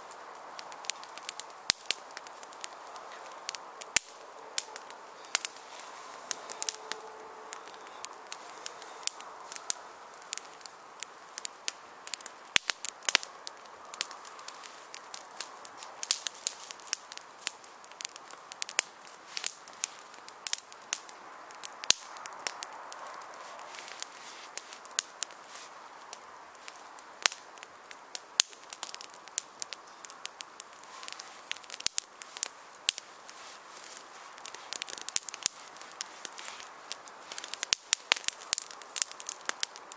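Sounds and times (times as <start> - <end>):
faint steady rush: 0.0 - 39.9
fire crackling: 0.0 - 39.9
fire snapping and popping: 0.0 - 39.9.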